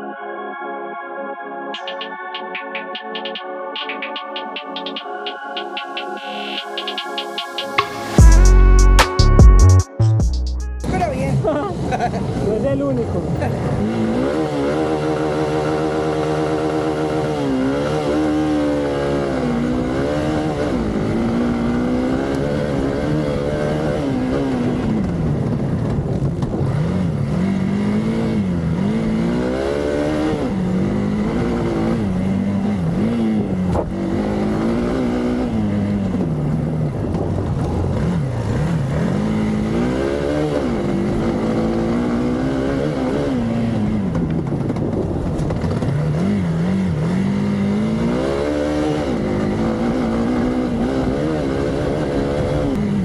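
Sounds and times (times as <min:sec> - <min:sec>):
motorcycle engine revving: 0:10.8 - 0:53.0.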